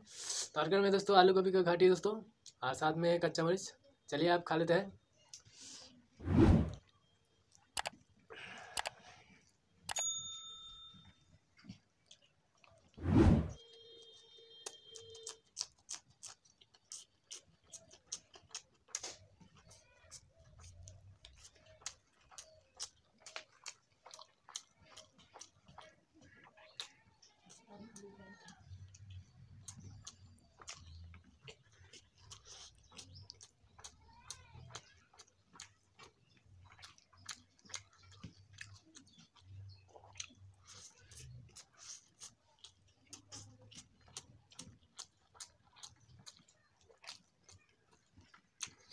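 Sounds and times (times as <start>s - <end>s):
faint chime-like tone: 10.0s - 11.3s
person chewing and lip-smacking: 11.6s - 13.0s, 13.6s - 48.9s.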